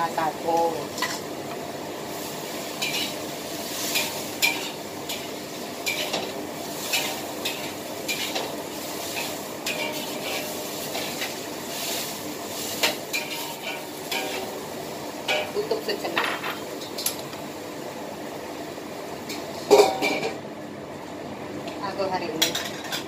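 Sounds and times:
frying sizzle: 0.0s - 23.0s
spatula scraping a wok: 2.2s - 14.6s.

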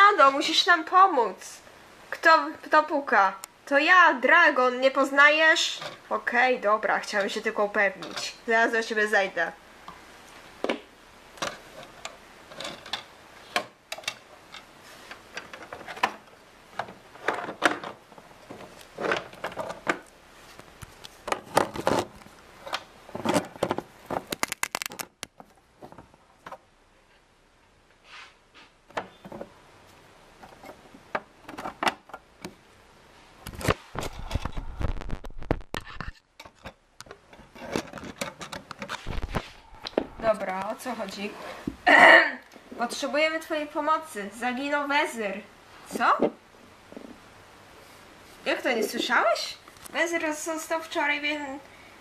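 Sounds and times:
plastic toys clicking and rustling: 21.0s - 25.4s
microphone handling rumble: 33.9s - 36.0s, 39.0s - 40.8s.

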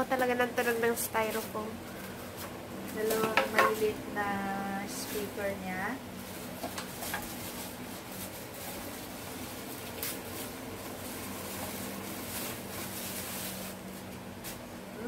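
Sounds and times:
low hum: 1.5s - 6.6s
packaging rustling in cardboard box: 6.2s - 14.6s.

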